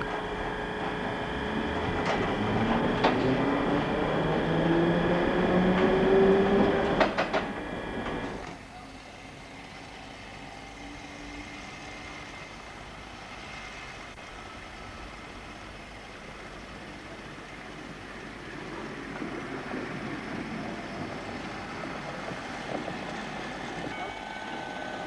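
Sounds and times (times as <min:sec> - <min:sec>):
wheels clacking over rail joints: 0:00.0 - 0:08.7, 0:16.1 - 0:25.0
tram motors whining: 0:00.0 - 0:25.0
tram running noise: 0:00.0 - 0:25.0.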